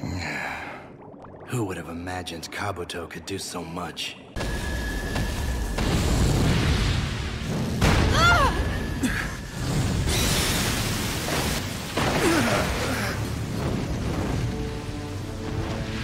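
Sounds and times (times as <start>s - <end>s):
crashing and rumbling effects: 4.4s - 16.0s.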